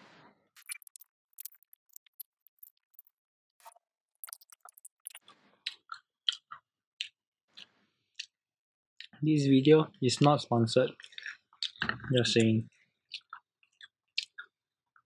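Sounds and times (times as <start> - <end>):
chewing and biting food: 0.6 - 8.4, 10.9 - 12.5, 13.1 - 14.5.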